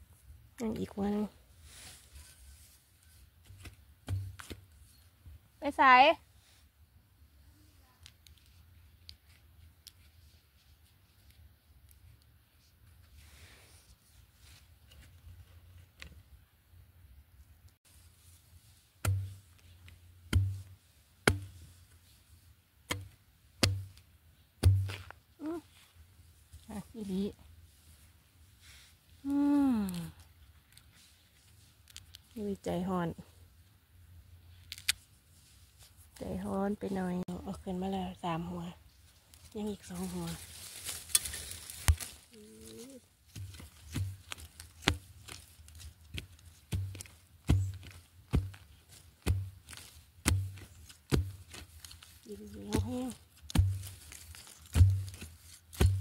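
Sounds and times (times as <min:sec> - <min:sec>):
metal blade striking soil: 0:03.4 - 0:04.6, 0:19.0 - 0:21.6, 0:22.9 - 0:24.0, 0:24.6 - 0:25.2, 0:41.0 - 0:42.1, 0:43.3 - 0:56.0.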